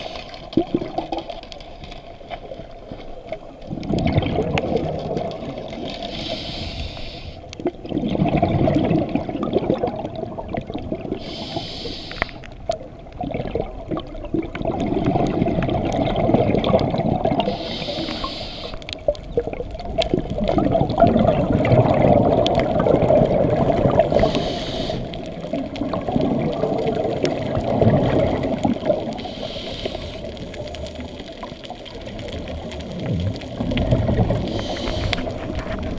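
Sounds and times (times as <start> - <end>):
rumbling exhaled bubbles: 0.0 - 35.9
regulator inhalation hiss: 6.1 - 7.5, 11.2 - 12.4, 17.5 - 18.9, 24.1 - 25.2, 29.2 - 30.3, 34.4 - 35.3.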